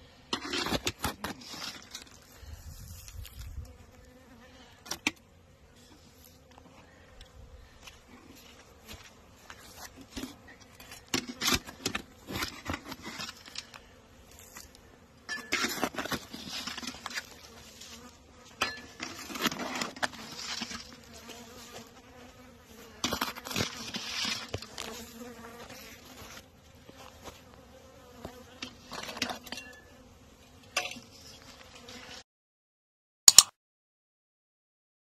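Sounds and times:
footsteps through dry grass: 1.8 - 3.6, 7.6 - 10.2, 16.3 - 18.2.

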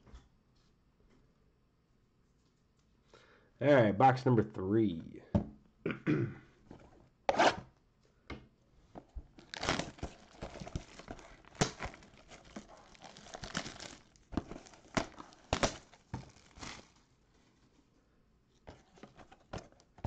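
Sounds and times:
shrink wrap crinkling and tearing: 9.3 - 17.1.

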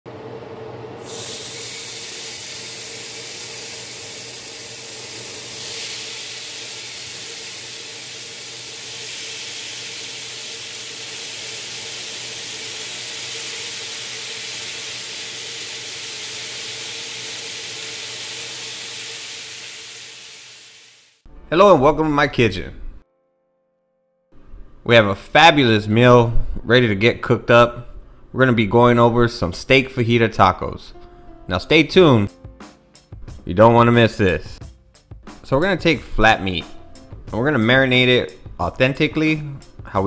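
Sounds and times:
steak sizzling on a grill: 1.0 - 21.2.

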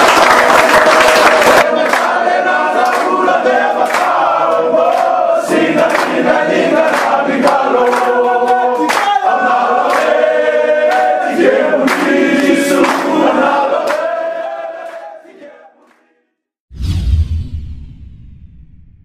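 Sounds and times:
men singing in harmony: 1.6 - 15.8
low thud: 16.7 - 19.0.

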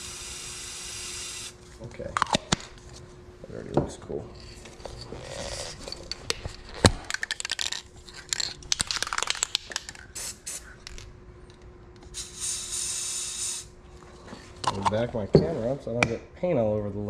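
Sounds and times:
aerosol paint spraying hiss: 10.1 - 10.6, 12.1 - 13.7.

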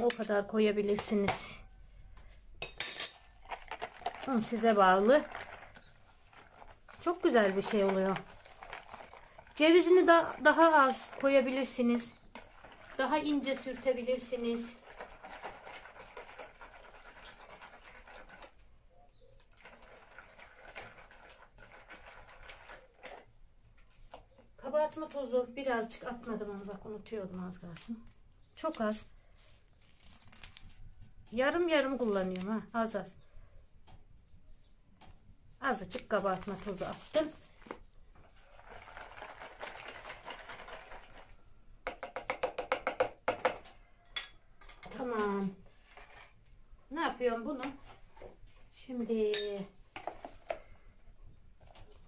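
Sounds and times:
spoon scraping bowl: 2.6 - 18.6, 44.0 - 46.4.

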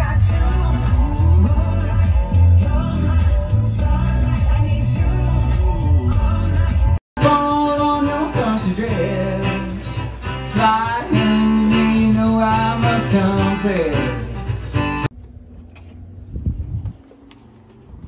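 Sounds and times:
man singing: 0.0 - 14.7
music with heavy bass line: 0.0 - 15.1
acoustic guitars strumming: 7.2 - 15.1.

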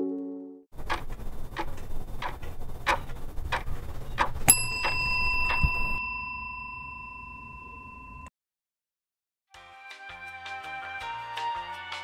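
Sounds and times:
elevator chime: 4.5 - 8.3.

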